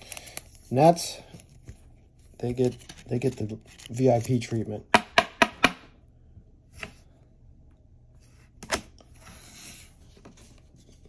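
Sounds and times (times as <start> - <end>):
cards rustling: 0.0 - 4.8.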